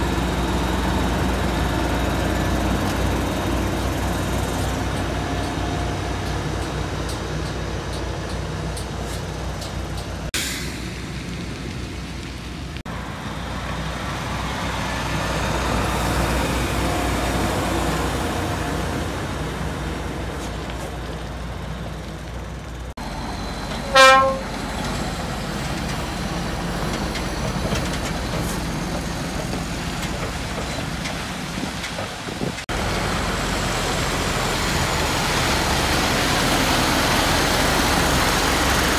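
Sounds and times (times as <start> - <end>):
diesel truck engine running: 0.0 - 38.9
truck horn blast: 23.8 - 24.6.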